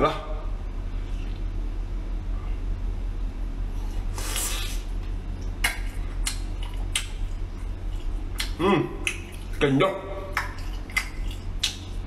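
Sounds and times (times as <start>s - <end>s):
steady low hum: 0.0s - 12.0s
sucking bite: 4.0s - 4.9s
chewing clicks: 5.4s - 9.6s, 10.3s - 12.0s.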